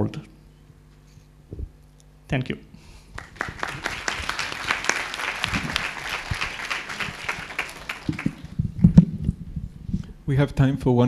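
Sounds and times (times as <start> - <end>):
audience applauding: 3.2 - 8.6.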